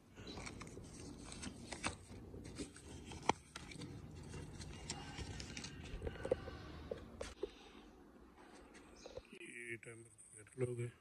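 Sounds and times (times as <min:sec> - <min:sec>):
paper rustling and crackling: 0:00.1 - 0:06.3.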